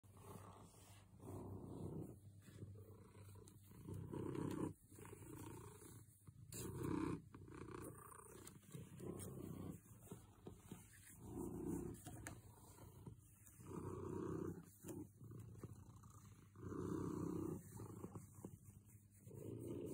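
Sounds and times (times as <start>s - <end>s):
cat purring: 0.0s - 19.9s.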